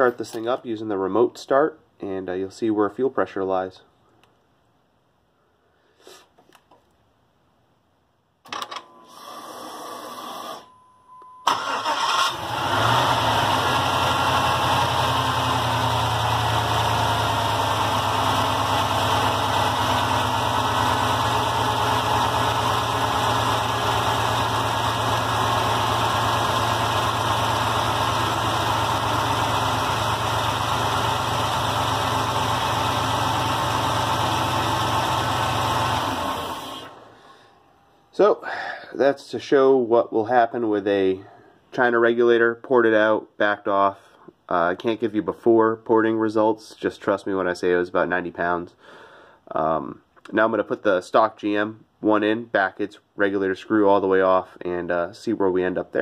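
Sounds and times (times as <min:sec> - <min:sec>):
electric fuel pump whine: 0:08.5 - 0:10.8, 0:21.2 - 0:38.1
car engine cranking and idling: 0:11.4 - 0:37.8.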